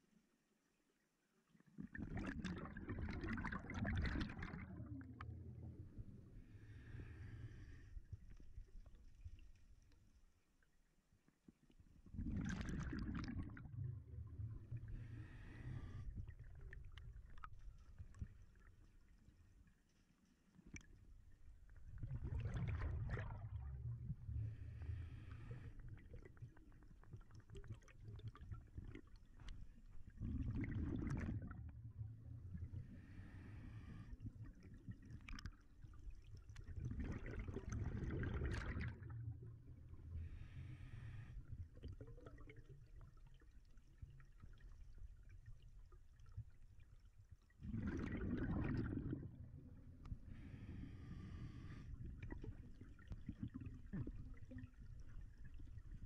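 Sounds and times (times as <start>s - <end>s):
exhaled bubbles rushing: 1.8s - 7.8s, 12.1s - 18.4s, 21.8s - 29.3s, 30.0s - 33.1s, 34.3s - 43.3s, 47.6s - 56.0s
regulator inhale hiss: 15.0s - 16.2s, 33.0s - 34.2s, 40.2s - 41.4s, 50.3s - 52.0s.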